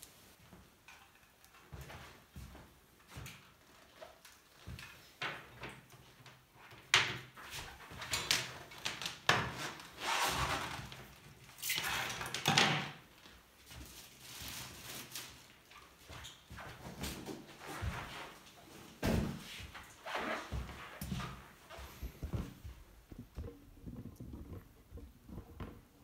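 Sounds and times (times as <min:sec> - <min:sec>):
cable rustling: 0:16.9 - 0:26.0.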